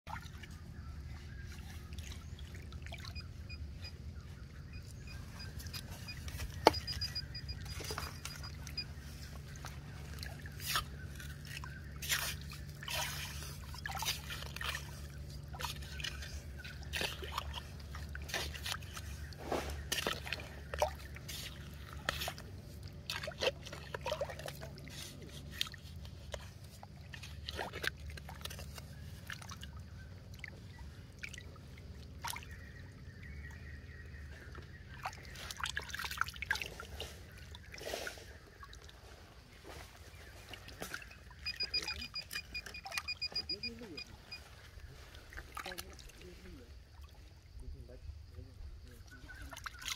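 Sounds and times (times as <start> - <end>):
low steady hum: 0.1 - 49.8
splashing and sloshing water: 0.1 - 49.9.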